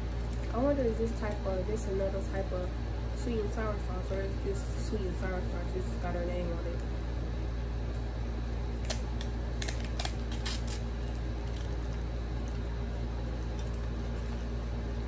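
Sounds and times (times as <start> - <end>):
steady low hum: 0.0 - 15.0
plastic sauce packet crinkling open: 8.8 - 14.5.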